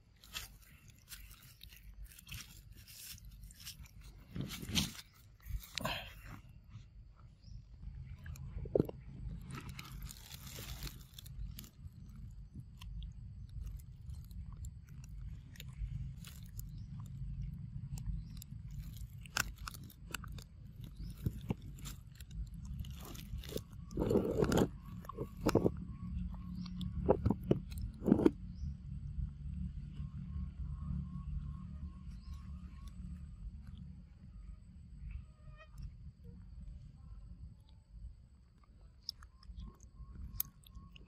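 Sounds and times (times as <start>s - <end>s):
monkey chewing and crunching: 0.0s - 6.4s, 7.9s - 28.3s, 38.6s - 41.0s
steady low rumble: 0.0s - 41.0s.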